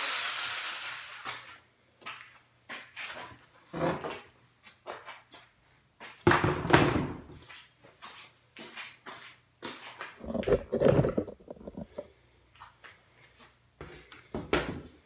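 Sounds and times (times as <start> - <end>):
jigsaw motor spinning down: 0.0 - 1.4
plywood knocks and scrapes: 10.2 - 12.1
wood clattering: 10.2 - 12.1.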